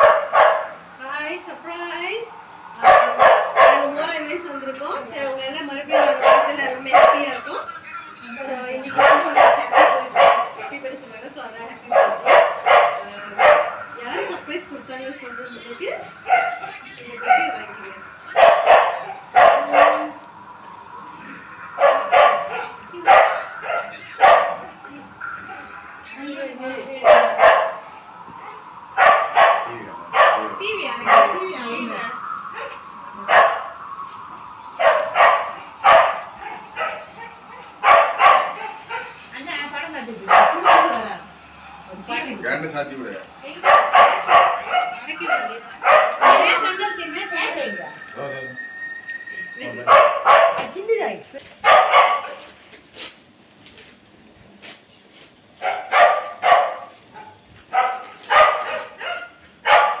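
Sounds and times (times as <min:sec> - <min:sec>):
dog barking: 0:00.0 - 0:00.9, 0:02.8 - 0:04.1, 0:05.9 - 0:07.6, 0:08.9 - 0:10.8, 0:11.8 - 0:14.5, 0:16.2 - 0:20.2, 0:21.7 - 0:25.8, 0:27.0 - 0:31.5, 0:32.6 - 0:33.8, 0:34.8 - 0:39.2, 0:40.2 - 0:41.2, 0:43.6 - 0:46.6, 0:49.8 - 0:50.7, 0:51.6 - 0:52.5, 0:55.6 - 1:00.0.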